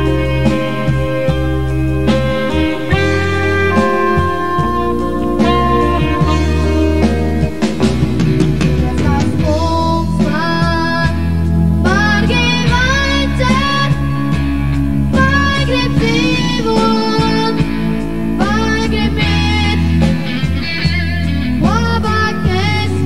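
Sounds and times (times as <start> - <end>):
bass guitar: 0.0 - 23.0
drum kit: 0.0 - 23.0
electric guitar: 0.0 - 23.0
boy singing lead: 8.6 - 14.5, 15.1 - 23.0.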